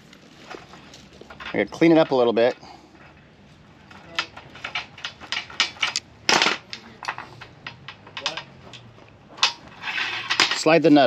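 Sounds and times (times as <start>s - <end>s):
metallic clicks of hand tools: 4.0s - 9.6s
tool scraping wire cable: 6.8s - 11.0s.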